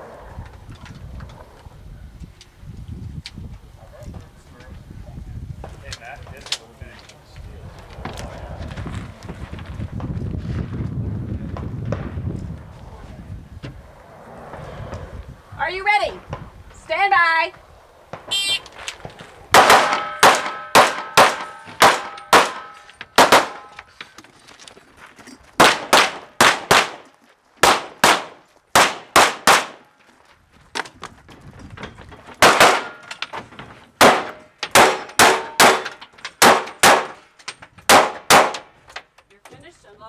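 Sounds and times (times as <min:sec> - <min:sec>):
rapid gunfire: 0:19.5 - 0:22.6, 0:23.2 - 0:23.7, 0:27.6 - 0:29.8, 0:36.4 - 0:37.2
steel targets clanging: 0:19.6 - 0:24.1.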